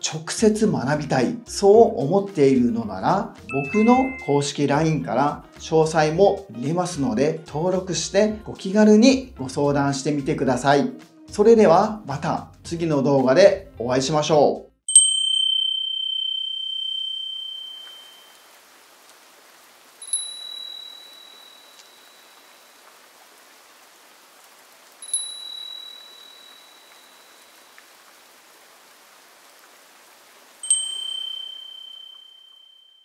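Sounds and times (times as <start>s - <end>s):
soft chime tones: 3.5s - 4.7s, 14.9s - 18.5s, 20.0s - 22.6s, 25.0s - 27.7s, 30.6s - 33.0s
faint steady hiss: 17.4s - 32.7s.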